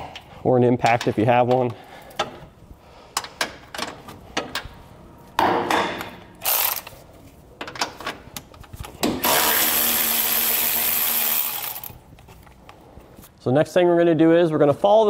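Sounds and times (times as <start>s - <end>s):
power ratchet running: 6.4s - 6.9s, 9.2s - 11.9s.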